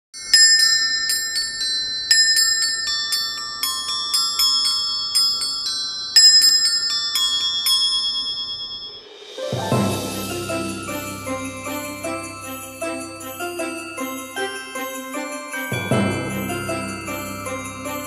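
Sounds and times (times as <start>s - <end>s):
glockenspiel melody: 0.2s - 18.0s.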